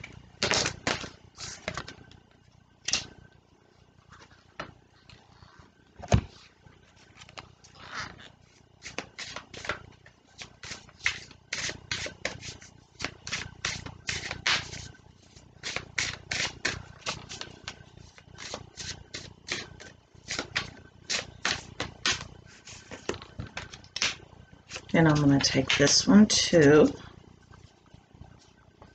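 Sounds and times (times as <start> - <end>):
cards being shuffled: 7.1 - 9.8, 10.4 - 25.8.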